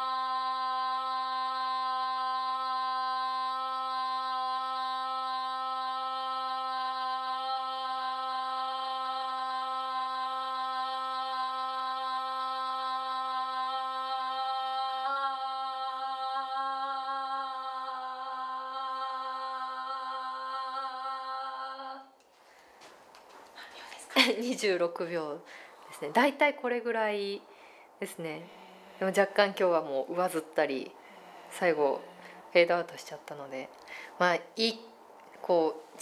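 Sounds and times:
woman holding a long aah: 0.0s - 22.2s, 28.2s - 32.8s.

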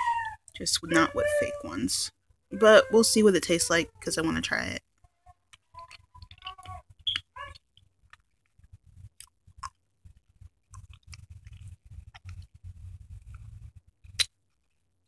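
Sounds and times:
candy being sucked and chewed: 5.4s - 14.8s
mouth clicks: 5.5s - 7.6s, 14.1s - 14.4s.

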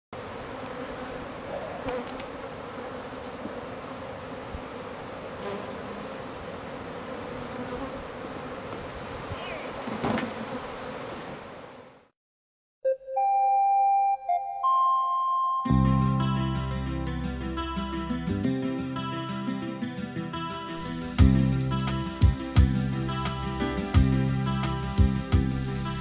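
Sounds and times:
honeybees buzzing: 0.2s - 12.0s.

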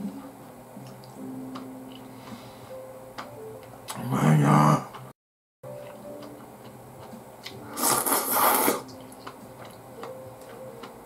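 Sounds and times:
noodles slurped: 7.8s - 8.9s
chewing and chopstick clicks: 8.8s - 11.0s.

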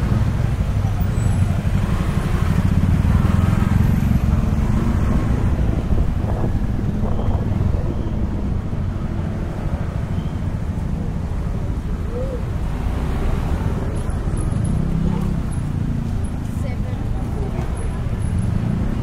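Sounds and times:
scooter and car engines idling: 0.0s - 4.5s.

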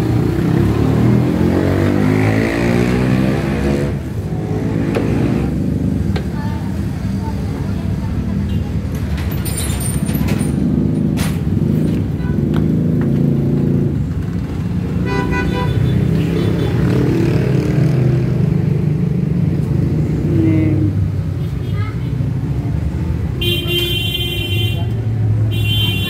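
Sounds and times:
road traffic: 0.0s - 26.0s
car horn beep: 15.0s - 16.8s, 23.4s - 26.0s.

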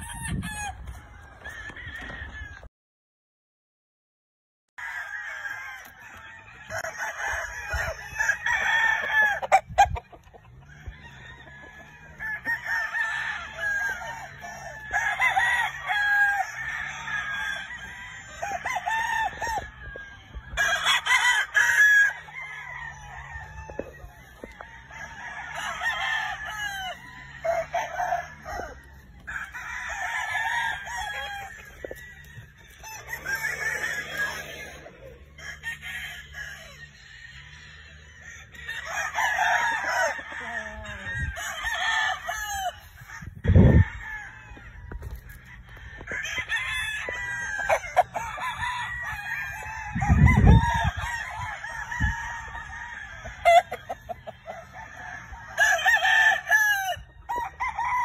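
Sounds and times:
roosters crowing: 0.0s - 2.7s, 4.8s - 58.0s
chickens clucking: 9.3s - 12.8s, 30.7s - 35.6s, 42.7s - 48.7s.

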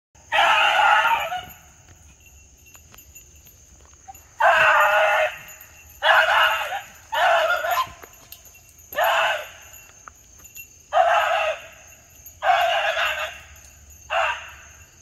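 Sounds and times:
dog baying: 4.4s - 8.1s, 12.4s - 14.6s.

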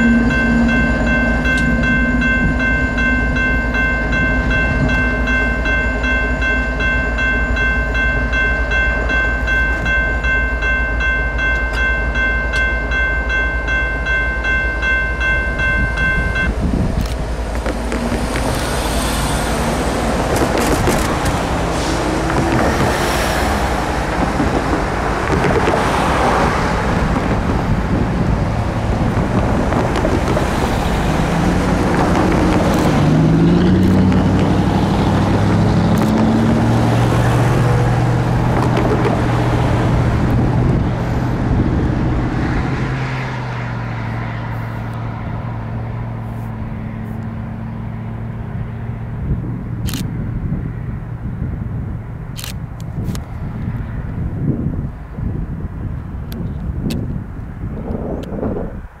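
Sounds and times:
loud rushing noise: 0.0s - 7.7s, 15.8s - 50.0s
diesel locomotive engine running: 0.0s - 59.0s.

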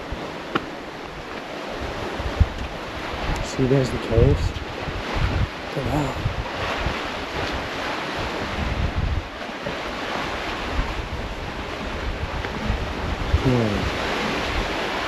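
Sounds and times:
sea waves on rocky shore: 0.0s - 15.0s
wind buffeting microphone: 0.0s - 15.0s.

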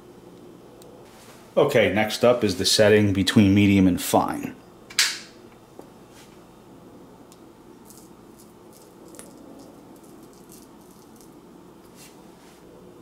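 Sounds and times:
metal spoon scraping coffee grounds: 7.8s - 12.1s.

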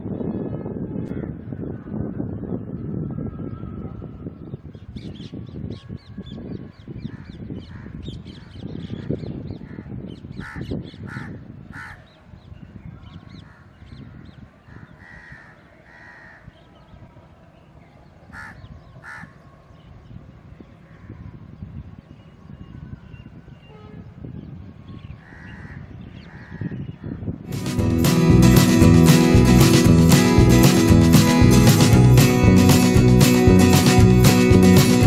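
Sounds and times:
crows cawing: 9.7s - 12.0s, 14.7s - 16.5s, 18.3s - 19.4s, 25.2s - 26.7s.

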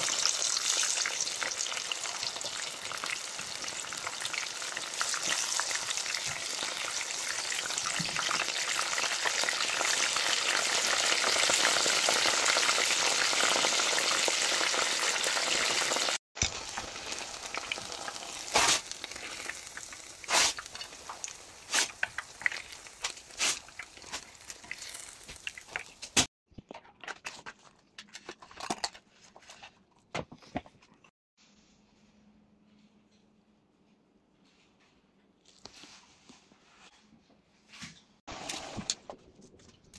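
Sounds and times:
food sizzling in hot oil: 0.0s - 26.3s.

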